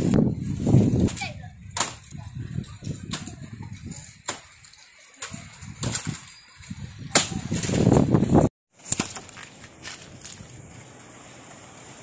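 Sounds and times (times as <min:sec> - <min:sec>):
wind buffeting microphone: 0:00.0 - 0:08.5
palm fronds cracking and snapping: 0:08.8 - 0:10.5.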